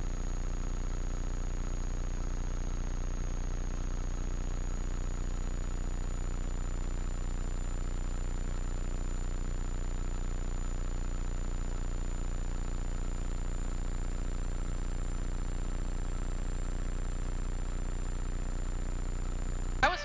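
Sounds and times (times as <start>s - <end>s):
high steady whine: 19.7s - 20.0s.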